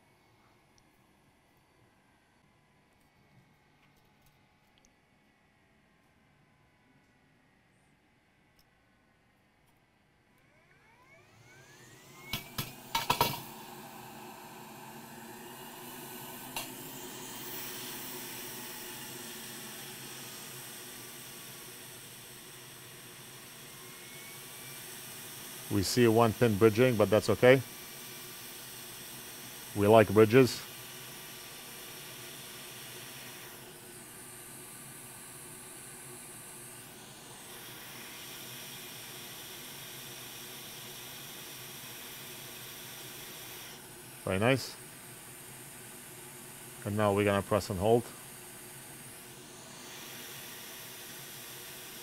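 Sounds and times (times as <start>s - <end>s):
flux sizzling under soldering iron: 16.1s - 52.0s.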